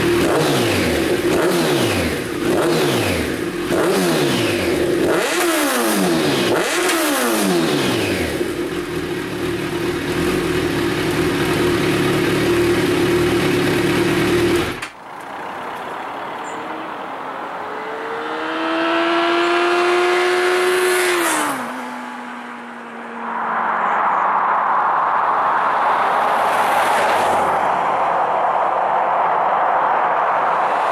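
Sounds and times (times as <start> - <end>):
motorcycle engine revving and idling: 0.0 - 16.9, 17.6 - 22.4
vehicle passing at speed: 15.2 - 30.9.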